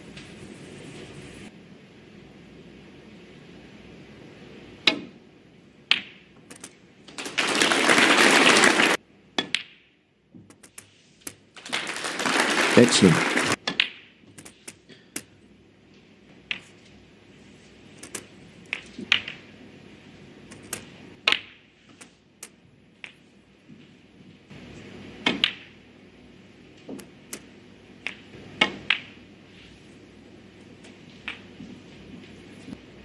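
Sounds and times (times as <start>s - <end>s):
snooker balls clicking: 5.8s - 15.3s, 15.9s - 17.0s, 18.0s - 19.5s, 20.5s - 25.8s, 26.7s - 29.2s, 30.6s - 32.8s.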